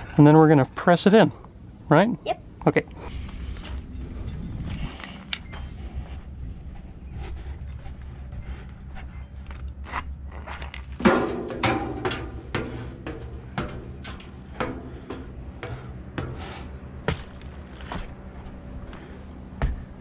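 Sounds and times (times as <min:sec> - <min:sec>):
steady low hum: 0:00.0 - 0:20.0
footsteps on steel stairs: 0:03.4 - 0:09.7, 0:10.4 - 0:20.0.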